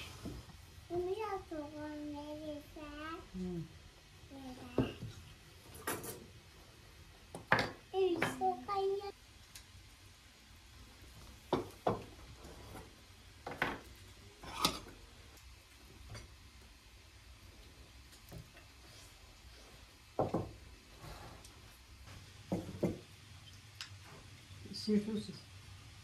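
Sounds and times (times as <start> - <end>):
plates and cutlery clinking: 5.7 - 6.3.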